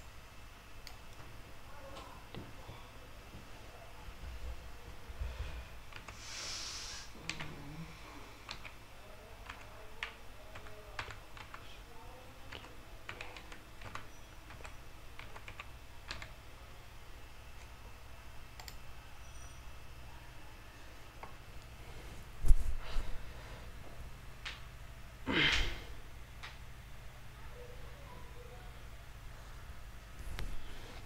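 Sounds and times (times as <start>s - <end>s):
short hiss: 6.1s - 7.1s.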